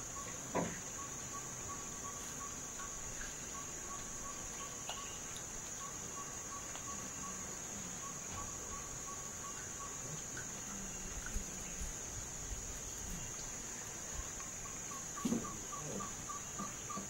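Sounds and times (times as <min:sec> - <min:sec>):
faint chirp: 0:00.0 - 0:12.0, 0:12.8 - 0:17.0
insects buzzing: 0:00.0 - 0:17.0.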